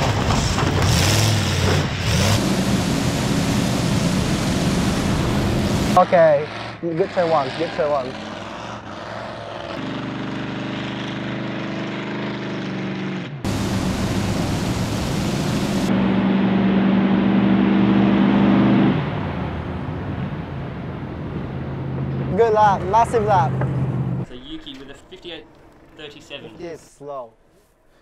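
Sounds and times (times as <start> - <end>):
monster truck engine running: 0.0 - 26.6
wide hiss: 2.4 - 6.0, 13.5 - 15.9.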